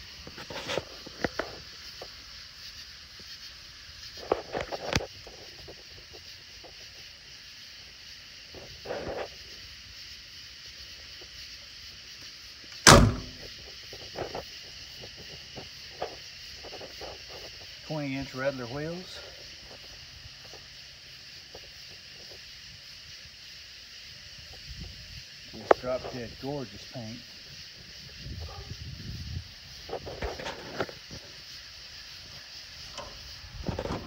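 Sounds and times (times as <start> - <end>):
steady high hiss: 0.0 - 34.0
car door slamming: 12.9 - 13.4
clicks and knocks: 12.9 - 13.4.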